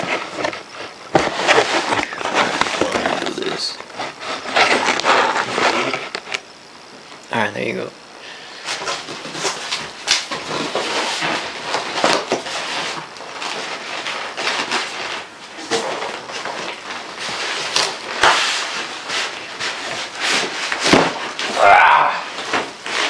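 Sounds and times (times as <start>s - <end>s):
cardboard and foam scraping: 0.0s - 6.4s, 8.6s - 23.0s
plastic wrapping crackling: 8.8s - 23.0s.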